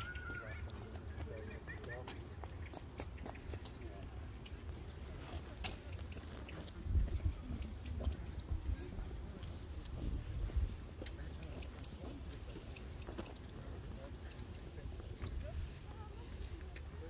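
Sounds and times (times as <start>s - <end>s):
small bird chirping: 1.3s - 15.5s
wind rumble on microphone: 6.7s - 10.9s.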